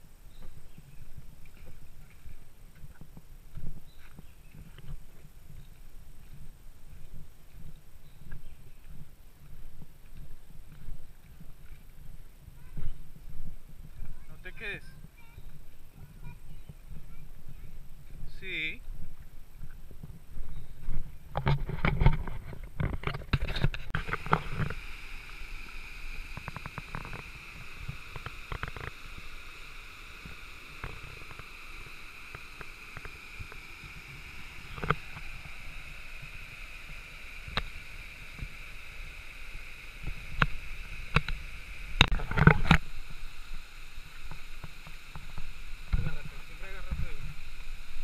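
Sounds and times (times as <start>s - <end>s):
footsteps on river stones: 0.3s - 29.4s
waterfall and stream rushing: 23.9s - 48.0s.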